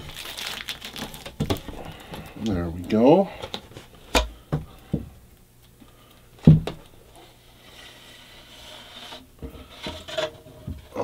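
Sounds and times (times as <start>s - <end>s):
bat rubbing inside tube: 7.1s - 10.5s.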